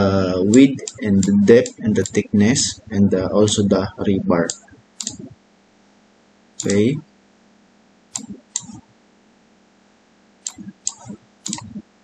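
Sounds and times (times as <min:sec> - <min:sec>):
computer mouse double-clicks: 0:04.5 - 0:05.3, 0:06.6 - 0:06.8, 0:08.2 - 0:08.8, 0:10.5 - 0:11.8.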